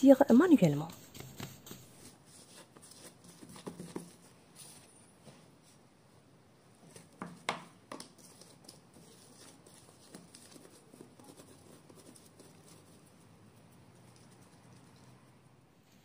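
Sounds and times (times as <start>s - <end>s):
soft patting and rubbing of dough: 0.0s - 15.3s
dough scraper tapping countertop: 7.2s - 8.1s.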